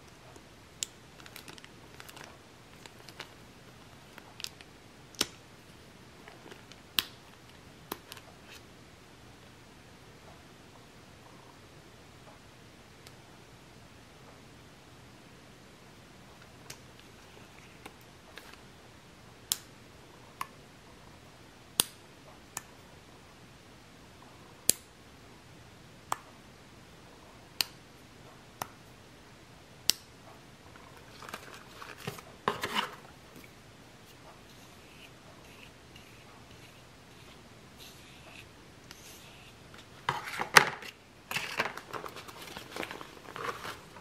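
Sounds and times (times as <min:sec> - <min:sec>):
rustling handling noise: 0:01.2 - 0:04.7, 0:30.7 - 0:44.0.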